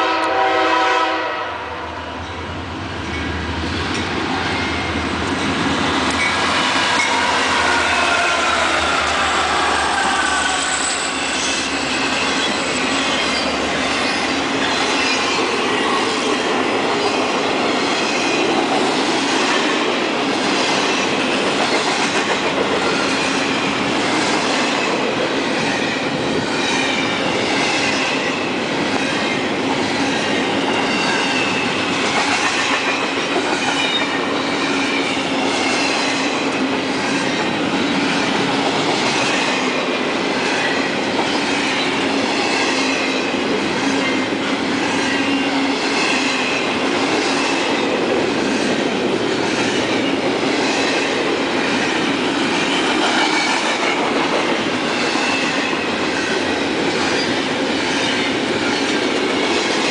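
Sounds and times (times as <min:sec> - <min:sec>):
freight cars rolling on rails: 0:02.4 - 0:59.9
clickety-clack over rail joints: 0:12.3 - 0:59.9.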